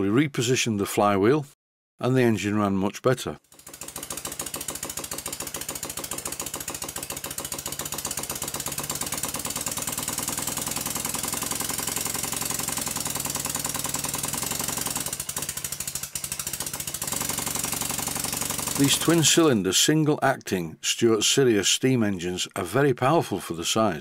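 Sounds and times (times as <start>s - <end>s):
model steam engine exhaust beats: 3.6s - 19.9s.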